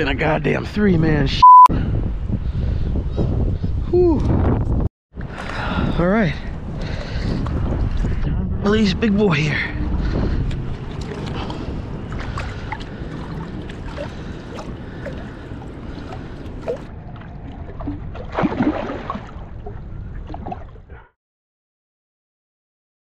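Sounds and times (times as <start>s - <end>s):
wind rumble on microphone: 0.0s - 21.0s
water sloshing and trickling: 10.0s - 21.0s
fish splashing: 10.8s - 20.8s.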